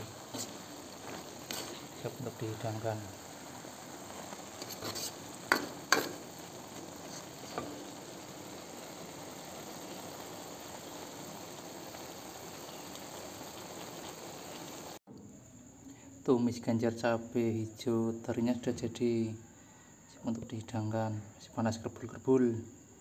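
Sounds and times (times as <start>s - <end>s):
food sizzling in a wok: 0.0s - 15.0s
spatula knocking on a wok: 5.5s - 6.2s.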